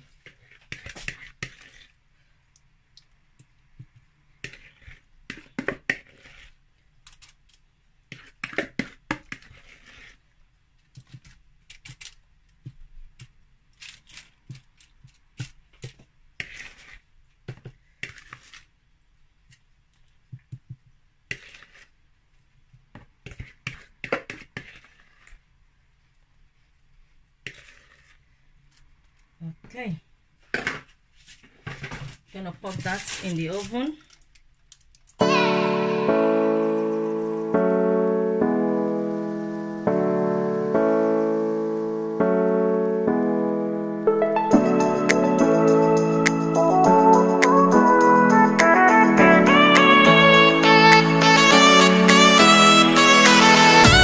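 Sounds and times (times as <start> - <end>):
aluminium foil crinkling: 6.1 - 10.2, 10.8 - 17.1, 31.4 - 35.2.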